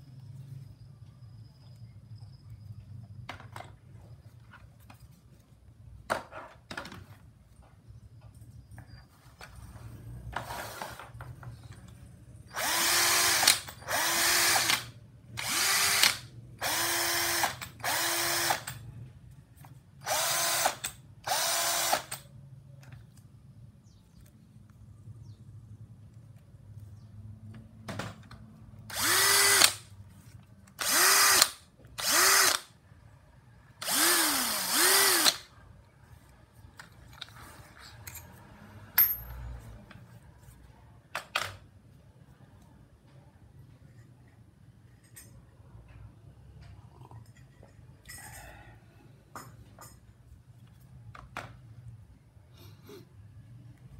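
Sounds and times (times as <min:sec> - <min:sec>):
cordless drill whining: 0:12.5 - 0:18.8, 0:20.0 - 0:22.2, 0:28.9 - 0:29.8, 0:30.8 - 0:32.7, 0:33.8 - 0:35.5.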